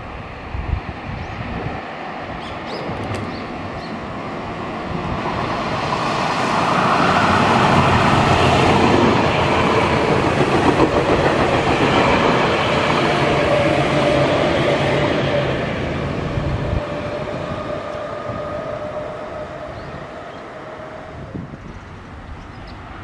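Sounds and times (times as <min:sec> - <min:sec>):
train rumbling past: 0:00.0 - 0:23.0
wheels clacking over rail joints: 0:05.3 - 0:13.0.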